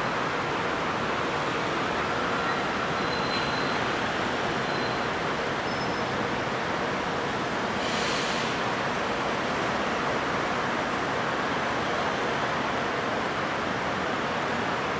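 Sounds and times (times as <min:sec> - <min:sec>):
road traffic: 0:00.0 - 0:14.9
brief hiss: 0:07.8 - 0:08.6.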